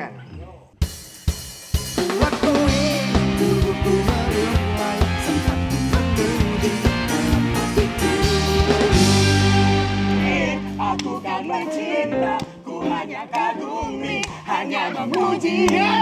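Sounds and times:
drums beating: 0.8s - 11.3s
live band playing pop song: 1.6s - 13.6s.

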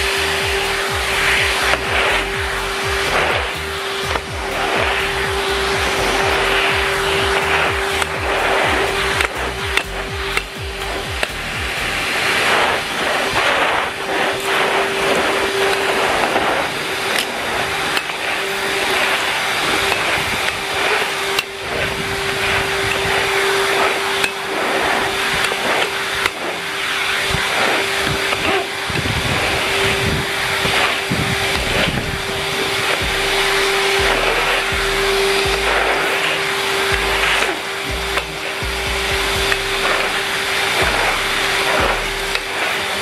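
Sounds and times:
vacuum cleaner running: 0.0s - 43.0s
brush tool scraping on concrete: 27.4s - 38.5s.

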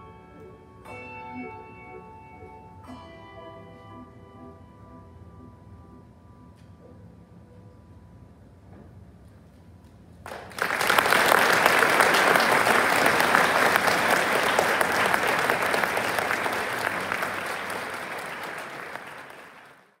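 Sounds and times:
audience applause: 10.3s - 20.0s.

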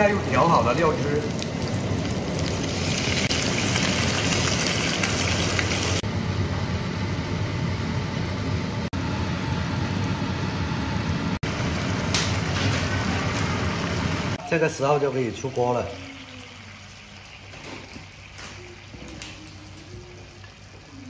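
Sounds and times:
sauce sizzling in frying pan: 0.0s - 6.0s, 11.5s - 14.4s, 15.0s - 19.6s.

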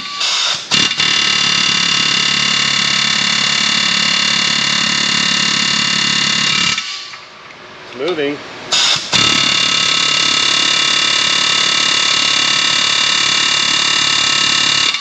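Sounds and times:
pneumatic air hammer hammering: 0.0s - 7.2s, 8.7s - 15.0s.

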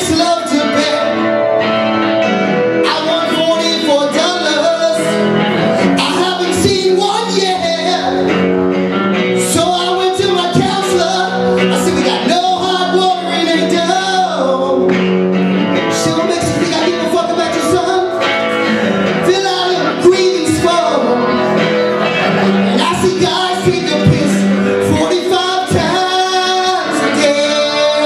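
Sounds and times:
man singing into a microphone: 0.0s - 1.5s, 2.6s - 28.0s
live guitar: 0.0s - 28.0s.

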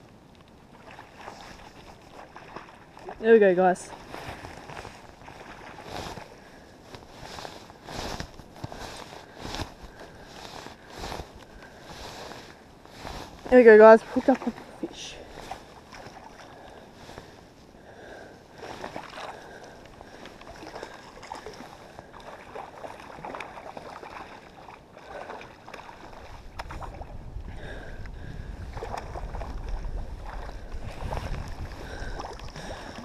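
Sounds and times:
water splashing: 0.7s - 6.6s, 11.8s - 17.3s, 17.9s - 27.8s, 28.6s - 33.0s
wind rumble on microphone: 25.8s - 33.0s.

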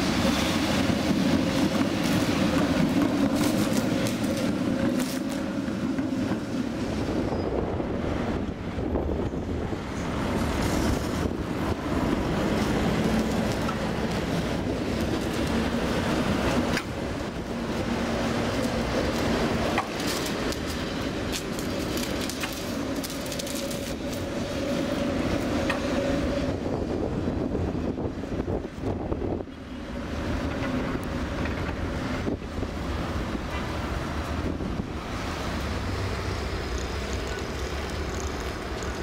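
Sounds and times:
tram motor hum and rolling: 0.0s - 39.0s
wheels clicking over rails: 10.4s - 26.0s, 35.5s - 39.0s.

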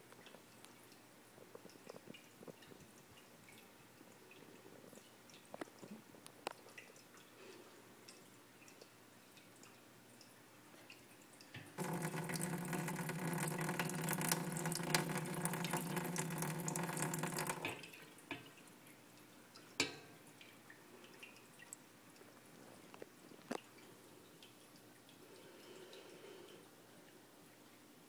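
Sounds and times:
water drips: 0.0s - 28.0s
water running from spigot: 11.8s - 18.1s.

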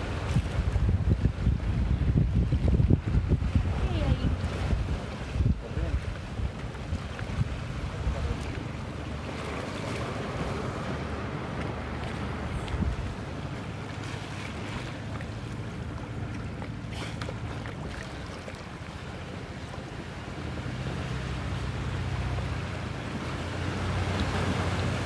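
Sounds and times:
wind on microphone: 0.0s - 16.4s
boat motor humming: 0.0s - 25.0s
water lapping: 0.0s - 25.0s.

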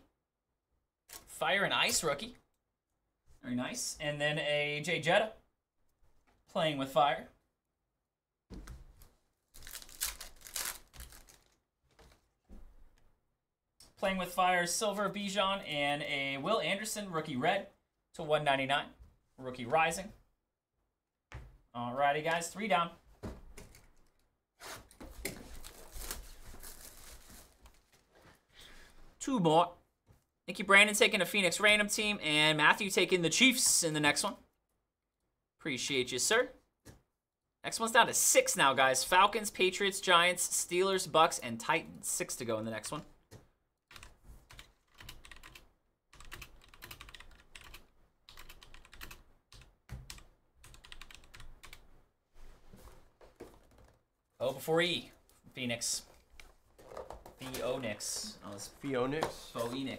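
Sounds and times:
plastic wrap tearing and crinkling: 9.5s - 11.6s, 25.4s - 28.1s
keyboard typing: 43.9s - 51.9s.

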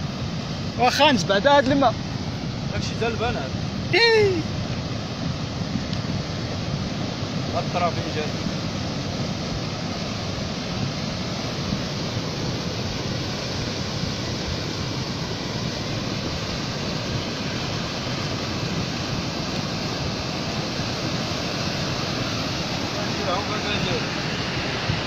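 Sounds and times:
wind buffeting microphone: 0.0s - 25.0s.

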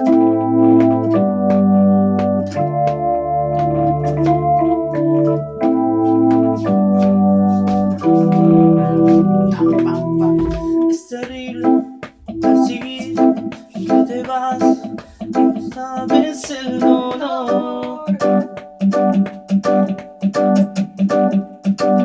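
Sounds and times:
sustained bass line: 0.0s - 10.8s
electronic organ chords: 0.0s - 22.0s
steady percussive beat: 0.0s - 22.0s.

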